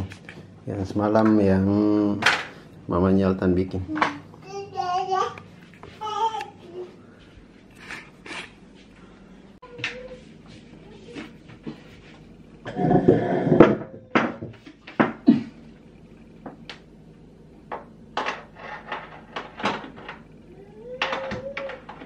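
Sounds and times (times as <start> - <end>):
cabinet parts clattering and knocking: 2.2 - 2.6, 12.7 - 15.5, 17.7 - 20.3, 21.0 - 22.0.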